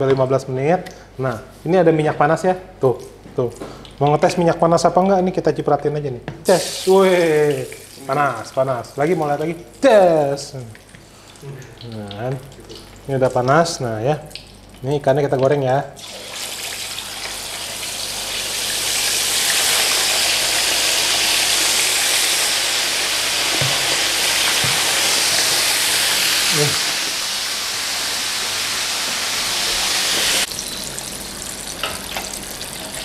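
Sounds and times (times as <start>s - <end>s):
fish sizzling in hot oil: 6.5s - 8.2s, 16.0s - 33.0s.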